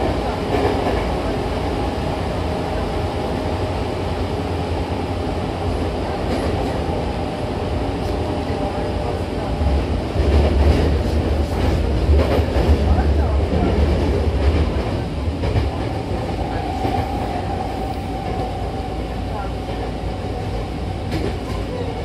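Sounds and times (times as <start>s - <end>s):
train wheels and motors rumbling: 0.0s - 22.0s.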